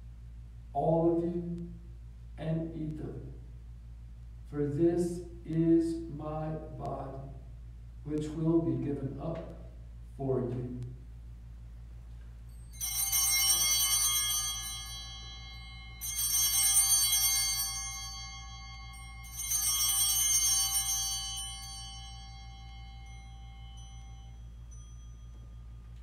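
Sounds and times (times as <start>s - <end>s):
altar bells jangling: 12.4s - 26.0s.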